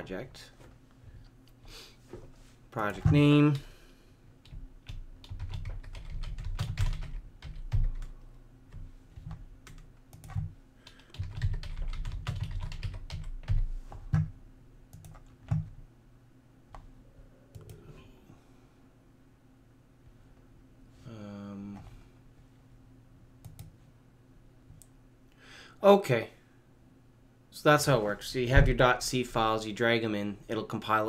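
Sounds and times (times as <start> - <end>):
typing on computer keyboard: 4.4 - 8.1, 9.3 - 14.3, 14.9 - 15.7.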